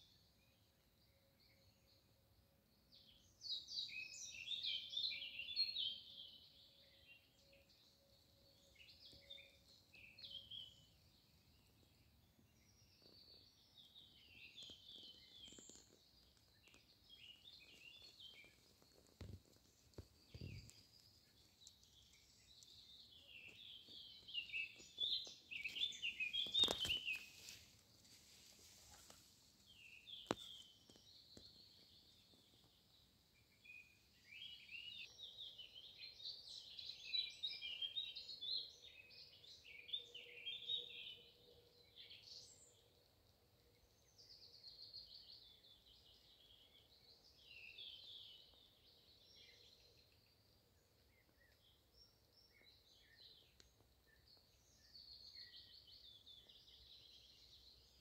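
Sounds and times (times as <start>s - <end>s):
songbirds chirping and trilling: 0.0s - 58.0s
click: 21.6s - 22.8s, 53.6s - 53.8s.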